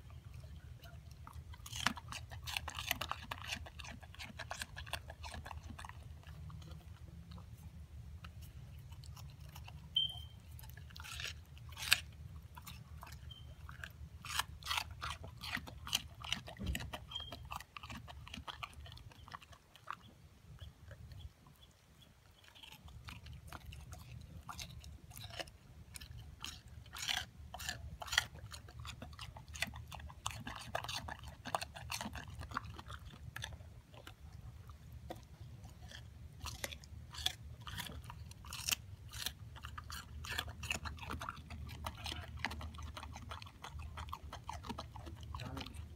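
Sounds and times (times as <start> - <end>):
dog crunching watermelon rind: 0.0 - 45.9.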